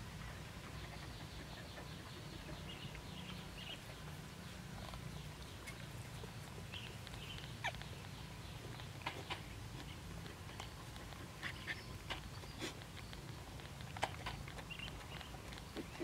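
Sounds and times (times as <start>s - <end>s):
puppies squeaking and whimpering: 5.6s - 16.0s.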